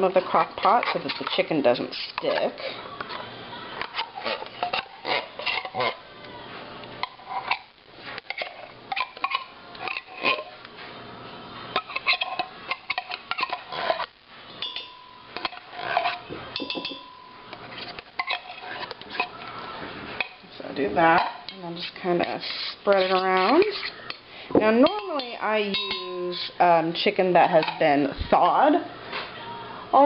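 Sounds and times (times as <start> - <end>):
metal utensil scraping tin can: 0.1 - 2.8, 3.8 - 6.0, 7.0 - 10.6, 11.7 - 14.8, 15.4 - 19.4, 21.0 - 24.0, 25.1 - 26.7.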